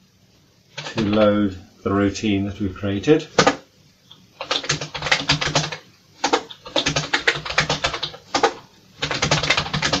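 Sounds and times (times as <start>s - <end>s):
keyboard keys clicking: 4.4s - 10.0s.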